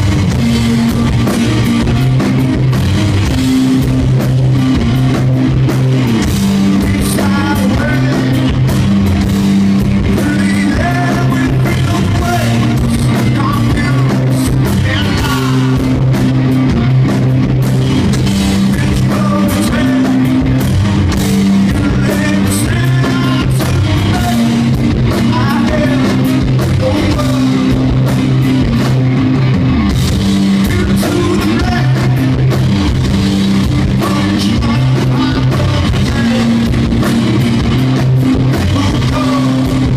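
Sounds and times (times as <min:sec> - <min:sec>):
bass guitar: 0:00.0 - 0:39.9
drums: 0:00.0 - 0:39.9
electric guitar: 0:00.0 - 0:39.9
person singing: 0:06.8 - 0:08.6, 0:10.0 - 0:16.0, 0:18.7 - 0:20.4, 0:21.7 - 0:27.9, 0:30.6 - 0:32.4, 0:33.9 - 0:37.1, 0:38.5 - 0:39.9.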